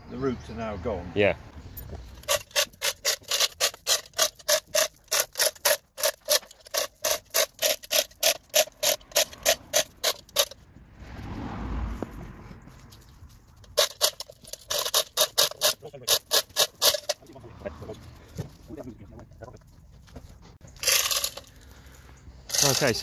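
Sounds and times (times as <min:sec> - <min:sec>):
chain block ratchet clicking: 0:02.2 - 0:10.6, 0:13.8 - 0:17.2, 0:20.8 - 0:21.7, 0:22.5 - 0:23.0.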